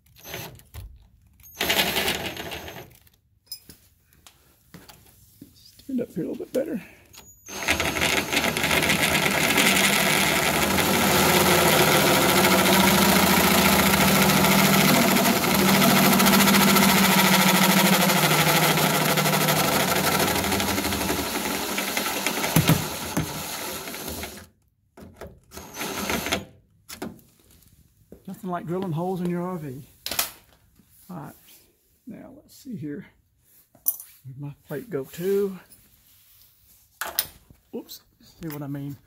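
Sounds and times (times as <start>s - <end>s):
electric drill drilling metal: 0.2s - 0.6s, 1.6s - 2.9s, 7.5s - 24.5s, 25.5s - 26.4s.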